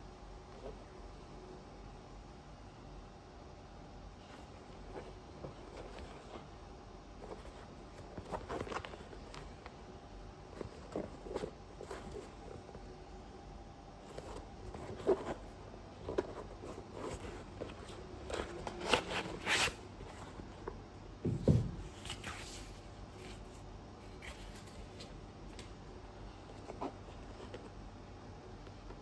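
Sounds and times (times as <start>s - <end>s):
rustling and crinkling of boot: 4.2s - 6.6s, 7.2s - 9.8s, 10.4s - 12.9s, 14.0s - 20.8s
soft low thump: 21.2s - 21.9s.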